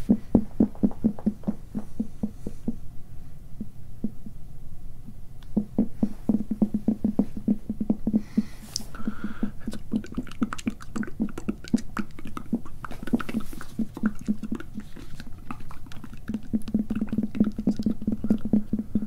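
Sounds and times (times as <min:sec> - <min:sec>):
wet mouth clicks: 0:05.4 - 0:19.0.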